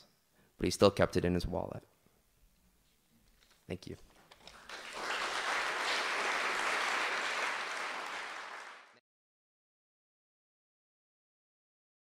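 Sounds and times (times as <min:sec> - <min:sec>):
audience applauding: 0:04.4 - 0:09.0.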